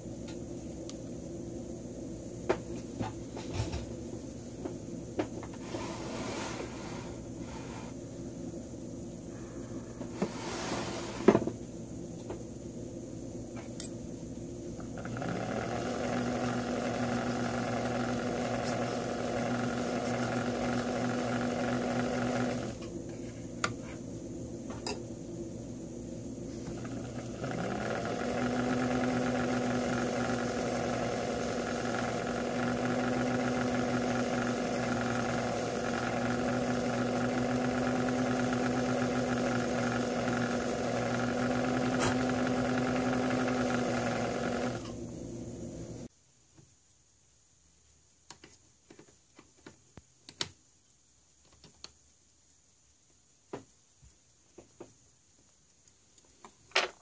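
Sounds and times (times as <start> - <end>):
small lathe motor humming: 14.8 - 22.9, 26.5 - 45.0.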